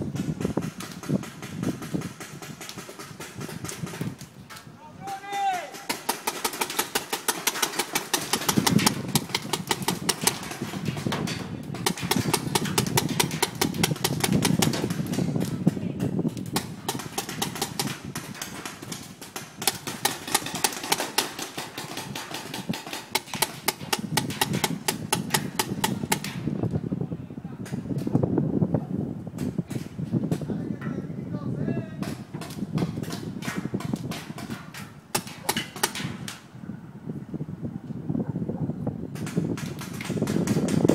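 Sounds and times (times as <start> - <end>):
paintball markers firing rapidly: 0.1 - 4.2, 5.2 - 26.6, 32.0 - 36.4, 39.2 - 40.9.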